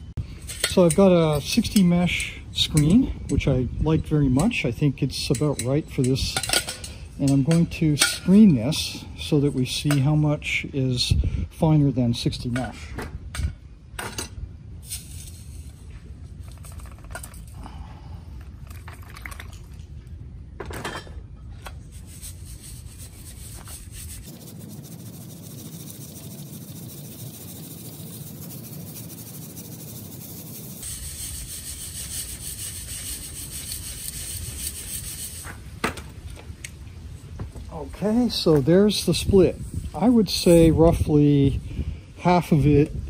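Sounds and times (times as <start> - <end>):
grit rasping over wire sieve: 21.8 - 35.6.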